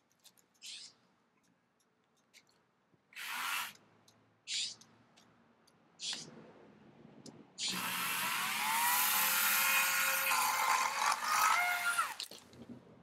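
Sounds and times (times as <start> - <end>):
electric chainsaw cutting branch: 7.6 - 12.3.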